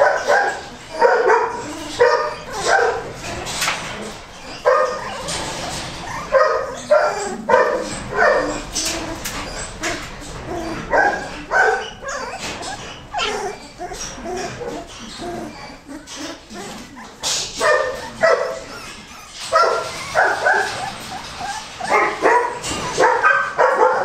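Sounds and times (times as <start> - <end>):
puppy whimpering squeals: 4.0 - 5.4, 6.0 - 23.0.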